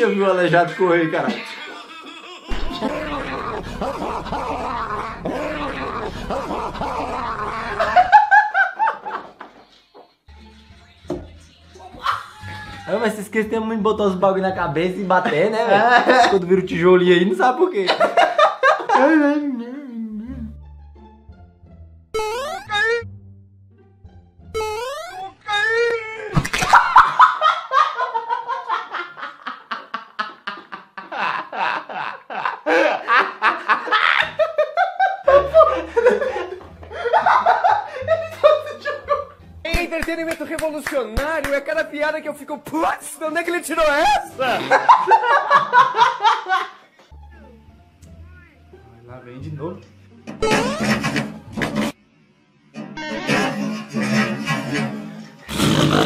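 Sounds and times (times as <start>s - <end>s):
men laughing high-pitched: 1.2s - 9.5s, 11.9s - 13.0s, 15.5s - 16.4s, 17.9s - 19.5s, 26.5s - 39.3s, 44.4s - 46.9s
low hum: 2.5s - 8.3s.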